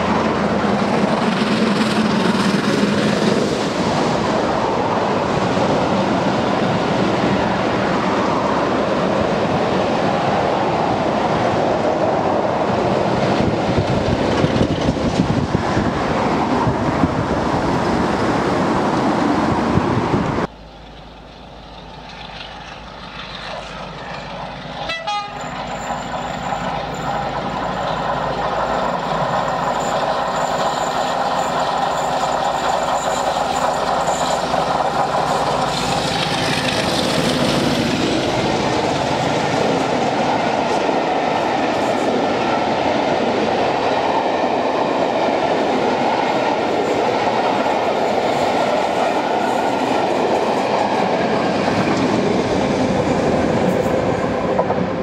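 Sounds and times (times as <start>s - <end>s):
diesel train approaching: 0.0s - 55.0s
rail clicks: 0.0s - 55.0s
steam train passing at speed: 0.0s - 55.0s
wheels clattering on rails: 13.4s - 16.0s, 20.4s - 55.0s
high ringing from rails: 20.6s - 36.5s.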